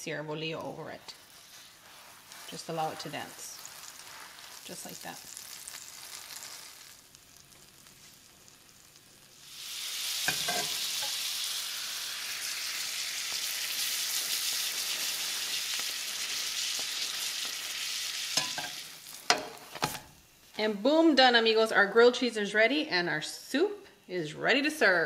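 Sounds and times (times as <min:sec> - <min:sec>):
butter sizzling in skillet: 0:00.0 - 0:22.3.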